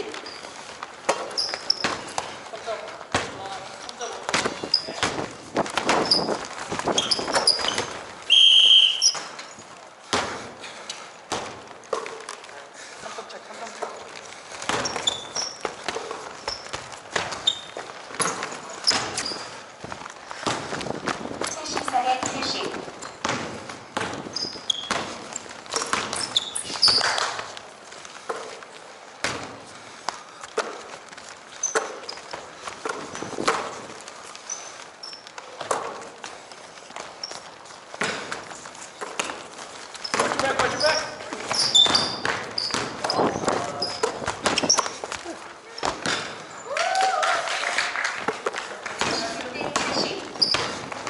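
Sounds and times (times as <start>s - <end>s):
sneaker squeaks: 0.0s - 9.8s, 13.8s - 20.8s, 21.4s - 29.6s, 30.2s - 46.7s, 49.0s - 51.0s
footsteps: 0.0s - 51.0s
basketball bouncing on wooden floor: 4.2s - 8.1s, 14.6s - 19.5s, 20.4s - 27.4s, 38.0s - 45.1s, 49.0s - 51.0s
referee's whistle blast: 8.3s - 9.2s.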